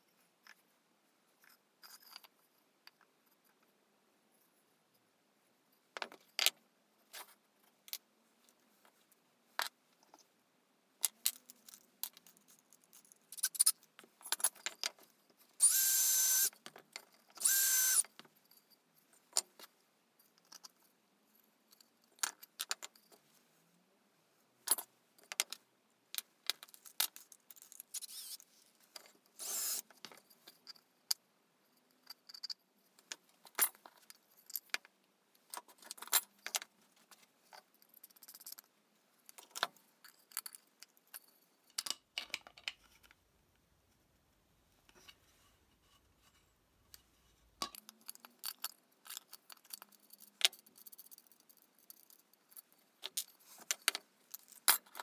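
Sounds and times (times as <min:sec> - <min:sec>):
cordless drill running: 0:15.6 - 0:16.5, 0:17.4 - 0:18.0, 0:28.1 - 0:28.4, 0:29.4 - 0:29.8.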